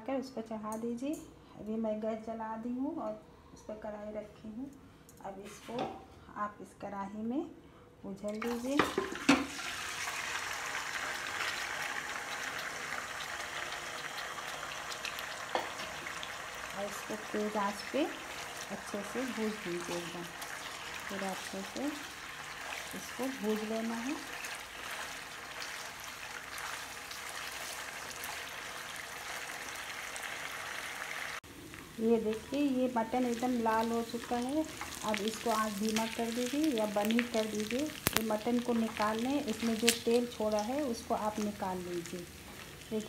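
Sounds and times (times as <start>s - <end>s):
meat sizzling in a pan: 8.8s - 43.0s
spatula stirring: 22.3s - 28.5s
small pops: 38.0s - 38.3s.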